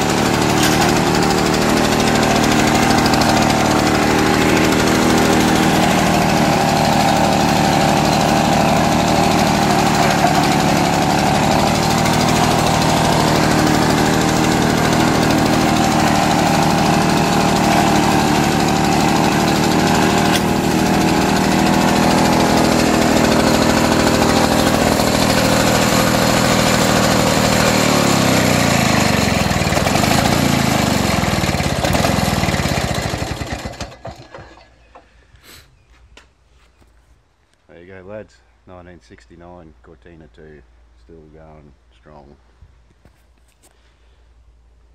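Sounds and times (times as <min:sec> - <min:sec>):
lawn mower engine running: 0:00.0 - 0:35.2.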